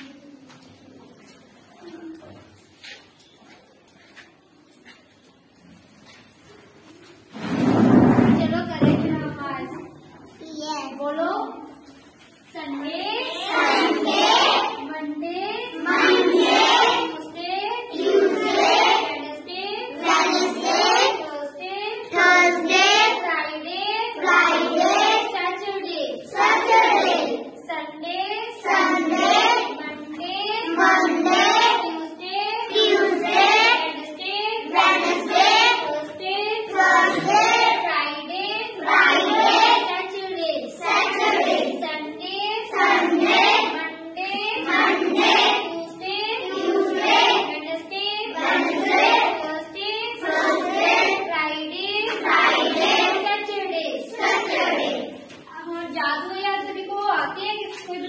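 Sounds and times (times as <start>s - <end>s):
children chanting in unison: 13.1s - 14.9s, 15.7s - 21.2s, 22.0s - 23.3s, 24.1s - 27.7s, 28.6s - 30.0s, 30.6s - 37.9s, 38.7s - 42.0s, 42.6s - 55.3s.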